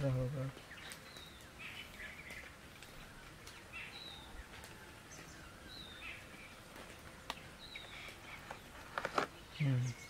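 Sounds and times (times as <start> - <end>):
faint background hiss: 0.0 - 10.0.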